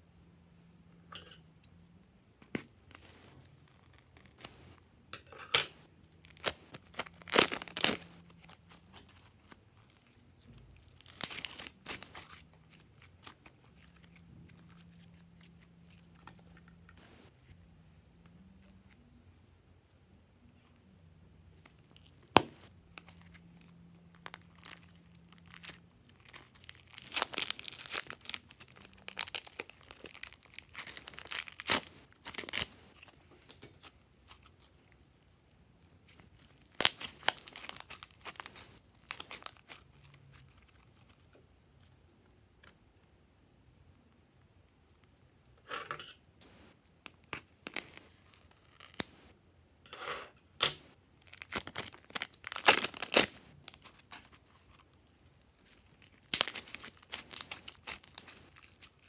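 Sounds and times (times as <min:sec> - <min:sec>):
slime crackling and squelching: 0:02.9 - 0:04.8, 0:05.8 - 0:17.3, 0:21.5 - 0:35.0, 0:36.0 - 0:41.4, 0:46.5 - 0:49.4, 0:51.2 - 0:59.0
plastic bag crinkling: 0:06.2 - 0:17.3, 0:22.0 - 0:33.2, 0:36.1 - 0:41.2, 0:51.2 - 0:54.8, 0:55.6 - 0:59.0.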